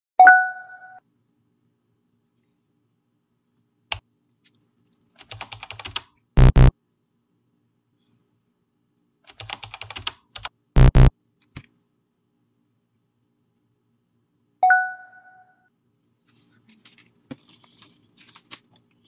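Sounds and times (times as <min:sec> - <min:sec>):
computer keyboard typing: 0:05.2 - 0:06.7, 0:09.3 - 0:11.1
short loud error buzzes: 0:06.4 - 0:06.7, 0:10.8 - 0:11.1.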